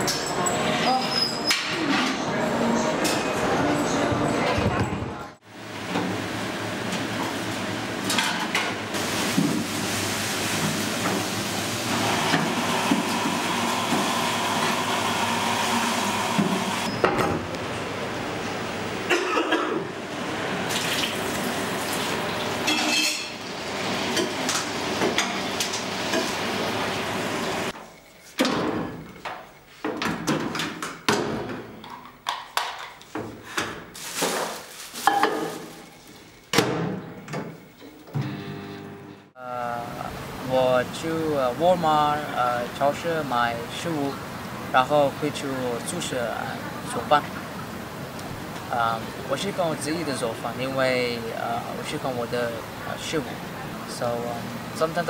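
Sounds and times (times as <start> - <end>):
dishes and cutlery clinking: 0.0 - 2.3, 22.7 - 23.4.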